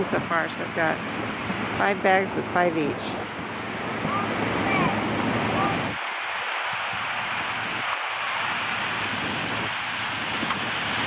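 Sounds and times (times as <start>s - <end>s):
waves washing onto beach: 0.0s - 11.0s.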